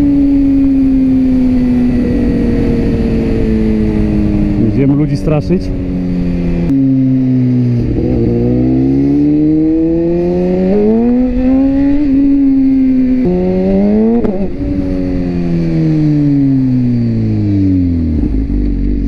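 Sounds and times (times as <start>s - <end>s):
motorcycle engine revving: 0.0s - 19.0s
road noise: 0.0s - 19.0s
wind noise: 0.0s - 19.0s.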